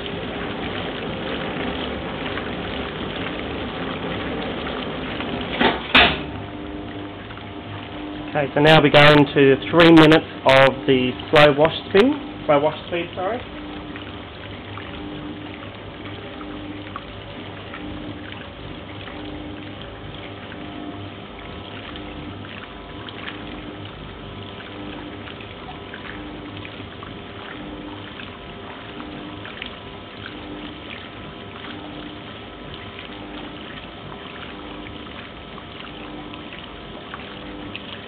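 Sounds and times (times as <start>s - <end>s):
washing machine motor hum: 0.0s - 38.0s
water sloshing in washing machine: 0.0s - 38.0s.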